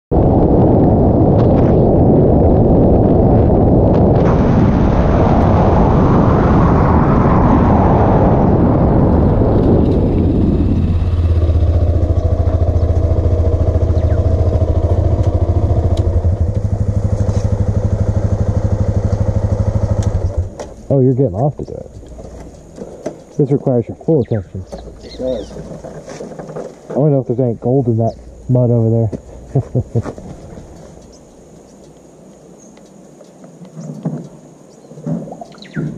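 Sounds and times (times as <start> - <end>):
wind and road noise: 0.1 - 35.9
motorcycle engine: 7.9 - 20.9.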